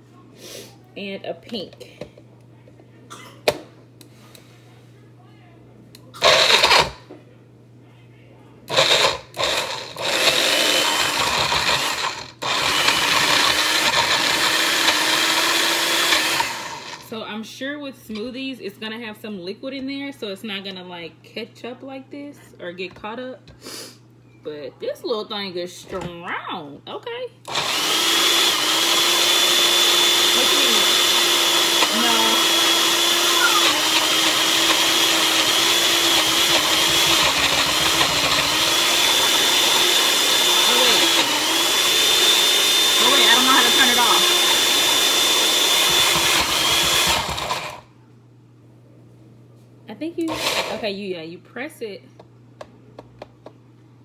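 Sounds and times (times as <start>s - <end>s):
blender grinding frozen fruit: 6.2s - 7.0s, 8.7s - 17.1s, 27.5s - 47.9s, 50.3s - 50.8s.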